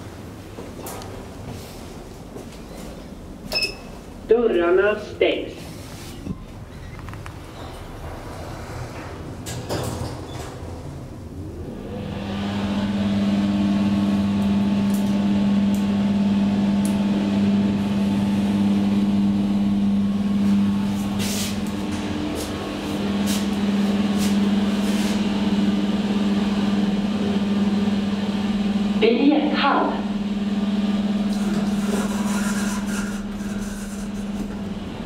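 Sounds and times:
elevator drive humming: 0.0 - 5.2, 6.1 - 35.0.

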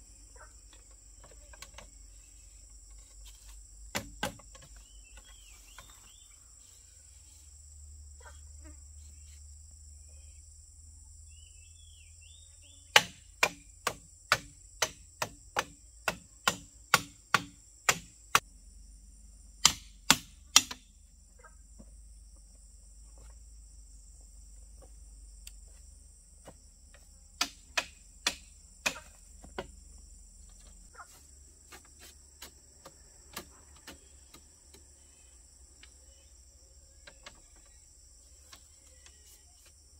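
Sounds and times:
insect drone: 0.0 - 39.9
hammer knocking on bamboo: 3.9 - 5.3, 12.9 - 18.4, 19.6 - 20.9, 26.9 - 29.8.

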